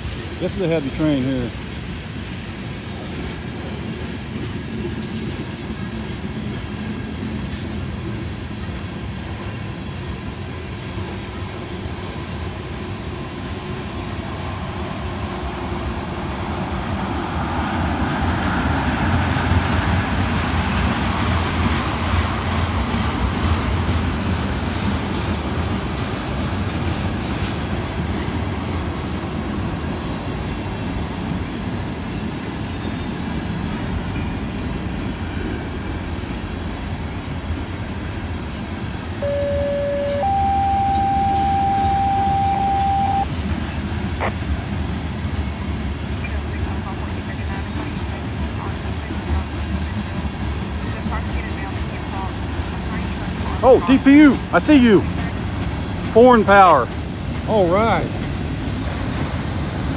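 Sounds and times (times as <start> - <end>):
train wheels rumbling on rails: 0.0 - 39.4, 43.3 - 59.9
squealing tone: 39.2 - 43.3.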